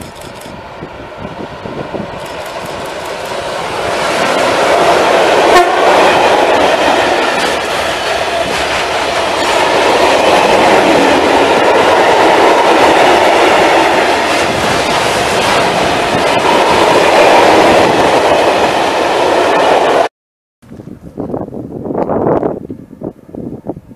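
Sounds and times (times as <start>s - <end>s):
sharp click: 0.0s - 0.6s
steel wheels rumbling on rails: 0.0s - 20.1s.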